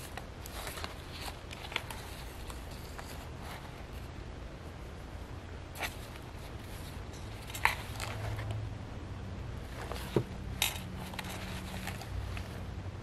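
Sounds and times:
pages turning: 0.0s - 4.0s, 5.8s - 8.5s, 9.7s - 12.6s
book cover closing: 9.8s - 12.5s.

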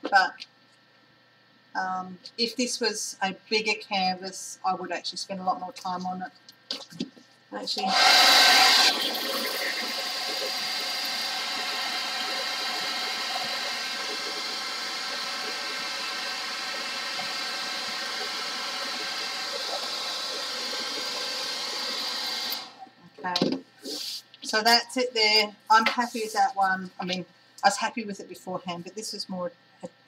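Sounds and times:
hairdryer blowing air: 7.8s - 22.8s.

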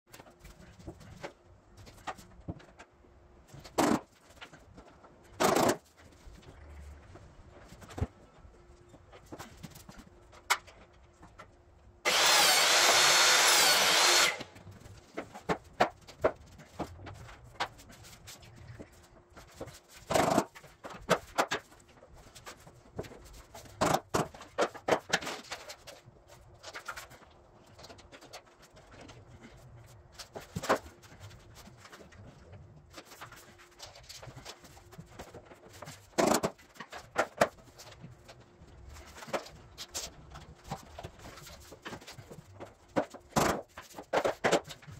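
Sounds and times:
knocks and clicks of planks and tools: 0.1s - 6.3s, 9.1s - 18.1s, 18.8s - 26.0s, 32.9s - 38.4s, 39.0s - 44.9s
handheld power tool running: 12.0s - 14.6s.

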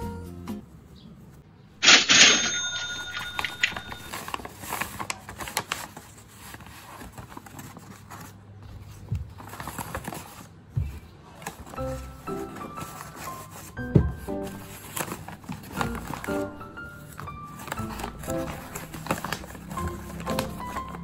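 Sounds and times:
paper bag crinkling: 3.2s - 8.6s, 14.4s - 21.0s.

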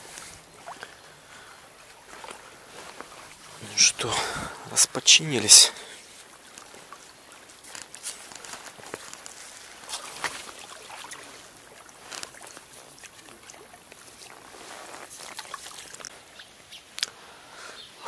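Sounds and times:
water lapping against bank: 0.0s - 18.0s
fishing tackle clicks and rustles: 1.8s - 16.2s.

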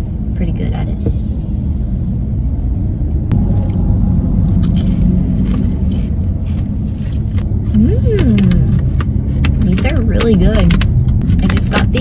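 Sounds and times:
car cabin road rumble: 0.0s - 12.0s.

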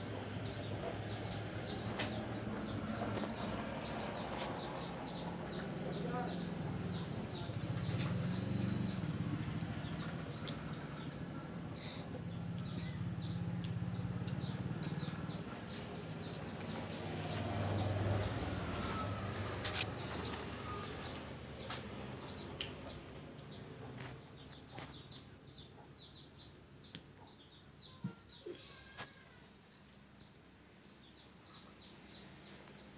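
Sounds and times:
small birds chirping: 0.0s - 32.9s.

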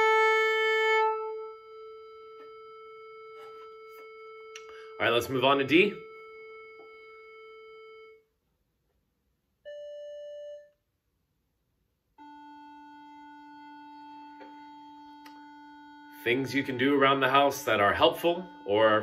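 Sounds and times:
tuning drone: 0.0s - 8.1s, 12.2s - 19.0s.

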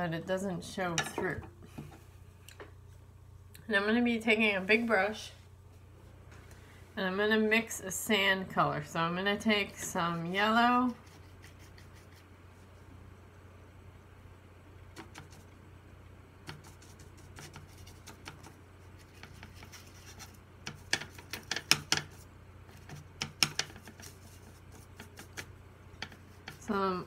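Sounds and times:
paintbrush scratching in palette: 9.8s - 12.3s, 16.4s - 26.8s.

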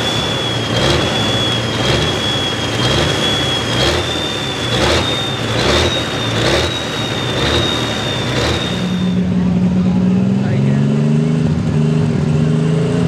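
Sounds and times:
high steady whine: 0.0s - 11.6s
tractor diesel engine running hard: 0.0s - 13.0s.

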